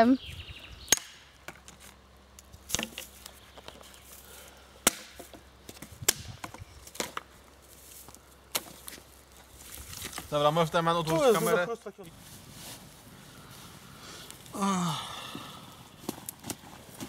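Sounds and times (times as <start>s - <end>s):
wood being chopped: 0.9s - 1.7s, 4.8s - 7.3s.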